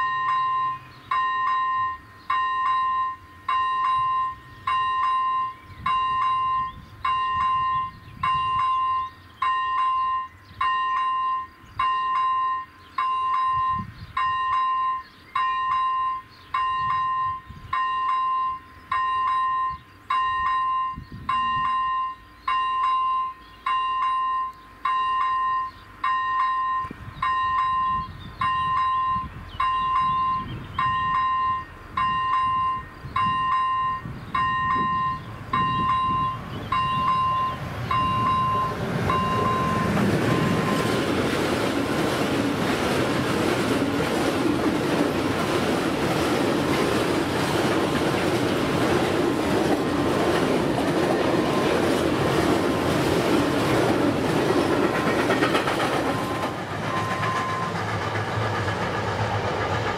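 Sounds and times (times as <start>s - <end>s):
level crossing warning bell: 0.0s - 41.2s, 49.7s - 53.2s.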